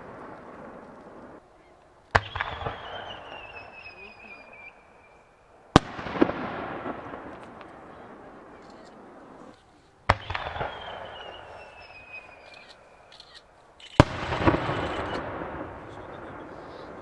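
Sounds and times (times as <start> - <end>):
echoing rumble and crackle: 0.0 - 5.0, 5.6 - 17.0
firework shells bursting: 2.1 - 4.0, 5.7 - 17.0
falling whistle: 2.2 - 5.4, 10.5 - 13.1.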